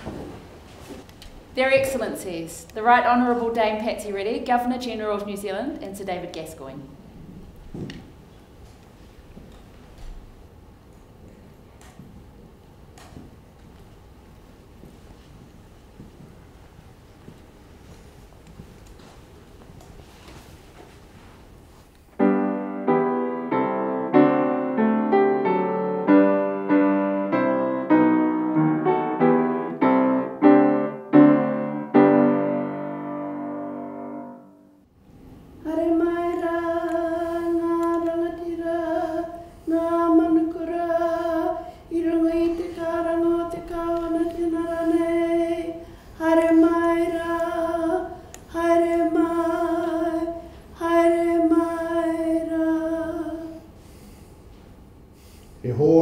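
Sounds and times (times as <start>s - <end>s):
piano playing chords: 22.2s - 34.9s
person chanting: 55.6s - 56.0s.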